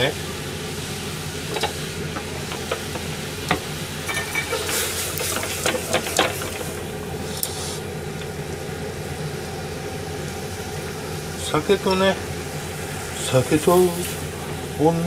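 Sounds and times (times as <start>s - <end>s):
pan and utensils clinking: 1.5s - 6.8s.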